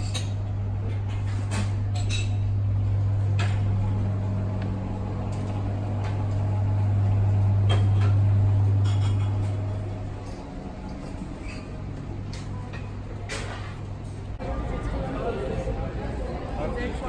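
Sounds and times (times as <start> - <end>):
tableware clinking: 0.0 - 0.4, 1.2 - 2.5, 7.7 - 13.8
low electrical hum: 0.0 - 17.0.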